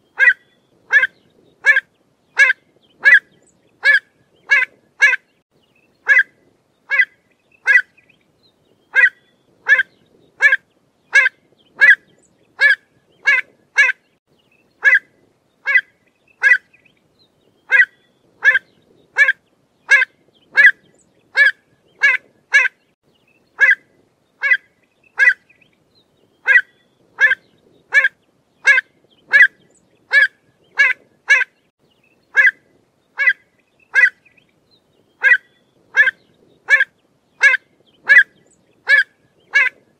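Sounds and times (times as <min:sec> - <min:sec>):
avocet calling: 0:00.1 - 0:05.3, 0:06.0 - 0:06.3, 0:06.9 - 0:08.1, 0:08.9 - 0:14.0, 0:14.8 - 0:16.8, 0:17.6 - 0:22.8, 0:23.6 - 0:23.8, 0:24.4 - 0:25.6, 0:26.4 - 0:31.6, 0:32.3 - 0:32.6, 0:33.2 - 0:34.4, 0:35.2 - 0:39.9.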